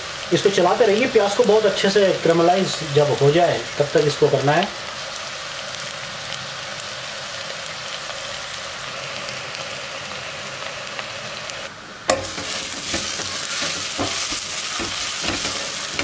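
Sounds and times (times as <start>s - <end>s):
onions sizzling in a pot: 0.0s - 16.0s
spatula scraping a pot: 12.1s - 16.0s.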